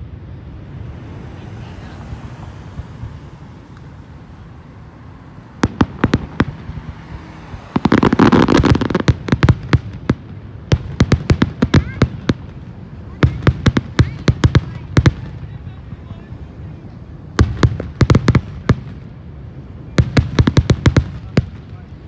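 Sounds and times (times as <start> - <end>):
fireworks bangs and crackle: 5.4 - 22.0.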